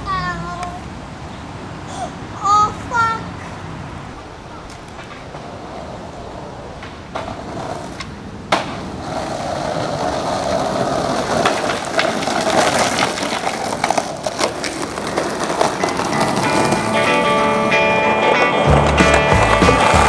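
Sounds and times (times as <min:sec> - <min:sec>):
skateboard wheels grinding on ground: 0:02.5 - 0:20.0
skateboard impact: 0:04.2 - 0:20.0
skateboard clacks: 0:04.4 - 0:20.0.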